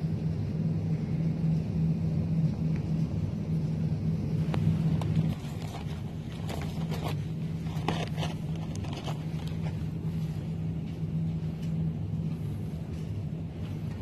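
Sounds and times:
steady low hum: 0.0s - 14.0s
plastic wrap crinkling: 4.6s - 9.8s.

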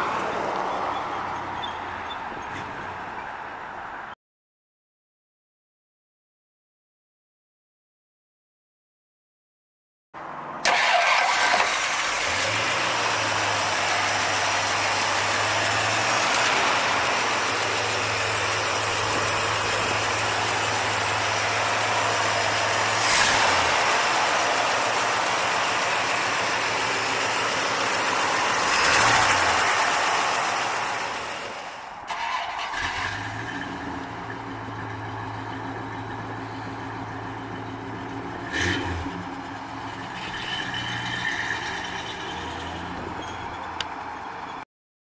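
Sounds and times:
car engine idling: 10.6s - 38.5s.

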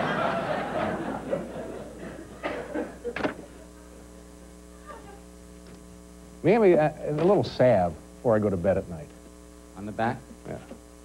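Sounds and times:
audience laughter: 0.0s - 3.6s
steady electrical hum: 0.0s - 11.0s.

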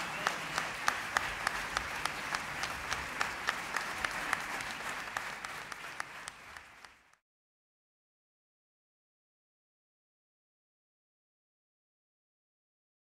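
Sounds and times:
crowd applauding: 0.0s - 7.2s
nearby hands clapping steadily: 0.0s - 7.2s.

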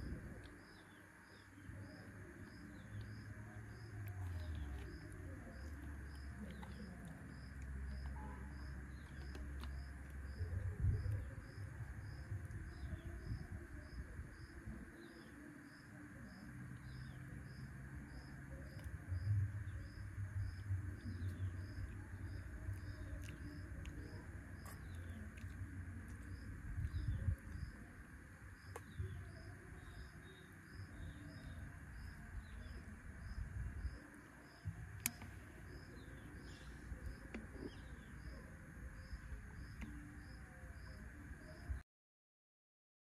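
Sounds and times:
insect chirping: 0.0s - 41.8s.

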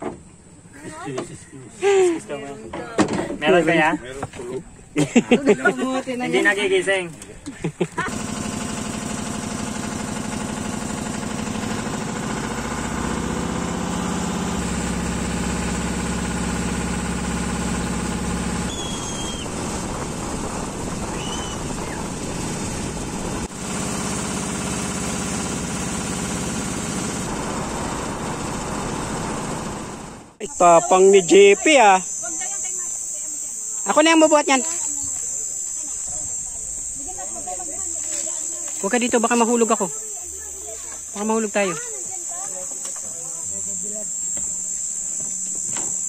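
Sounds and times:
boat motor running: 7.8s - 32.7s, 34.6s - 46.0s
water rushing along hull: 14.6s - 29.9s.

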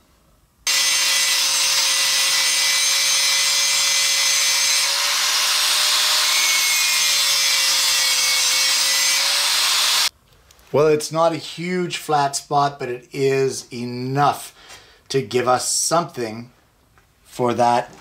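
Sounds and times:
angle grinder grinding steel: 0.7s - 10.1s.

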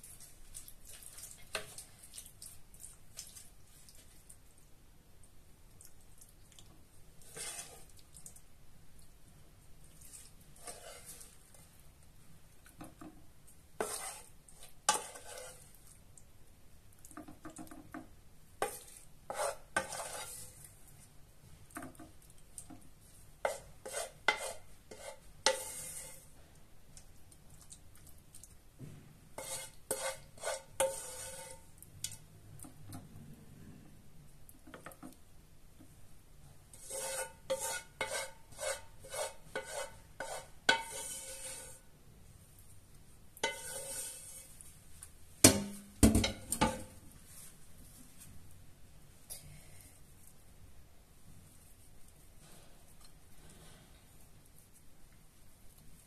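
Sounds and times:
spoon scraping a cooking pot: 7.2s - 8.0s, 10.0s - 11.5s, 13.8s - 15.8s, 18.6s - 20.7s, 23.4s - 26.3s, 29.4s - 32.3s, 36.7s - 41.9s, 43.4s - 44.7s.

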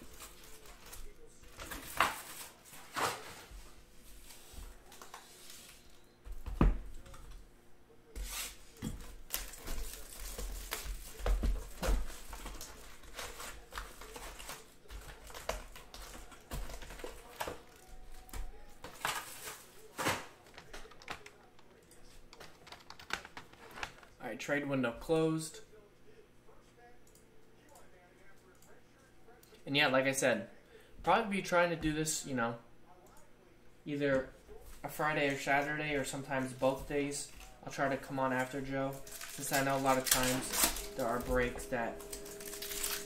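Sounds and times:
foil card packs crinkling: 0.0s - 3.5s, 9.3s - 21.2s, 36.8s - 43.0s.

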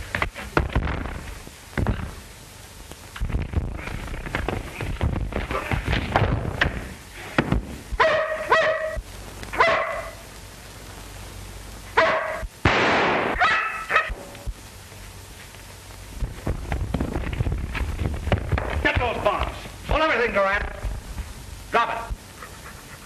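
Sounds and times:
dog barking and yelping: 8.0s - 9.0s, 9.6s - 10.2s, 12.0s - 12.5s, 13.4s - 14.2s.

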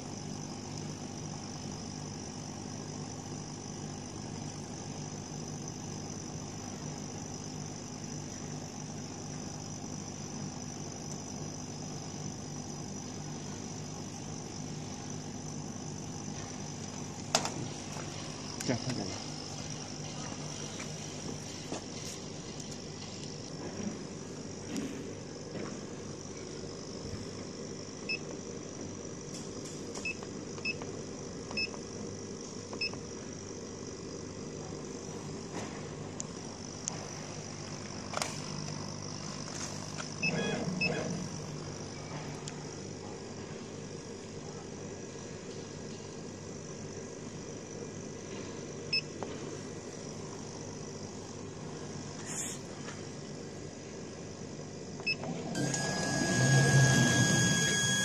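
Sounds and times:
laser cutter humming: 0.0s - 23.5s, 36.6s - 41.9s, 55.6s - 58.0s
keypad beeps: 40.2s - 41.1s.

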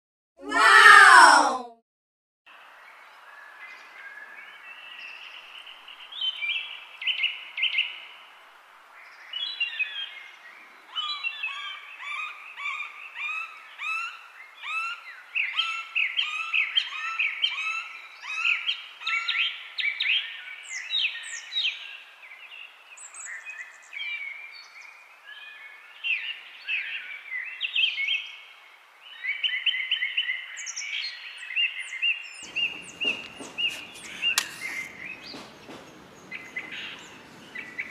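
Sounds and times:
birds chirping and trilling: 29.2s - 37.9s.

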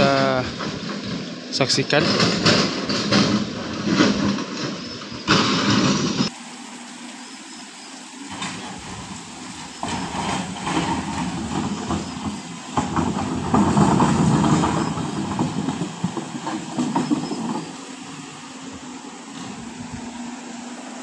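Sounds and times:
knocks and clatter: 0.0s - 6.3s, 9.8s - 20.1s
engine running: 0.0s - 21.0s.

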